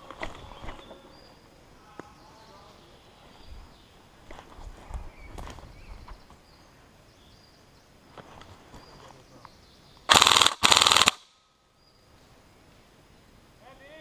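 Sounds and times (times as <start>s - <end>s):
airsoft rifle automatic bursts: 10.1s - 11.4s.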